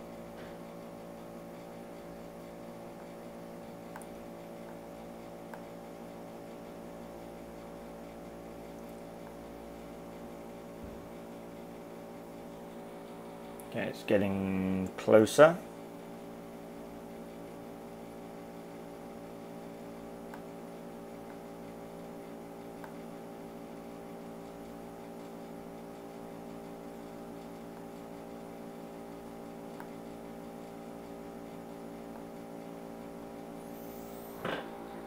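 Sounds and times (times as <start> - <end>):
electrical hum: 0.0 - 35.0.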